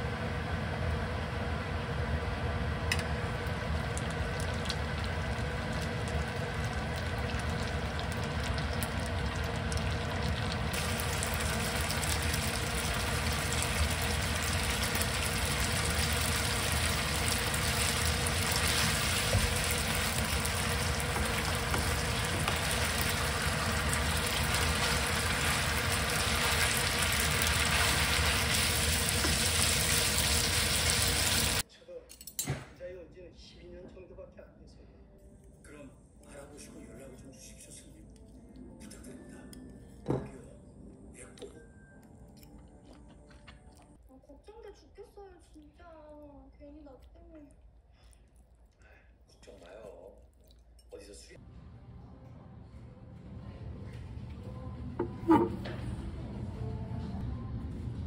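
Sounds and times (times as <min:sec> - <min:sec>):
constant hum: 0:00.0 - 0:32.3
spaghetti sizzling in oil: 0:03.4 - 0:31.6.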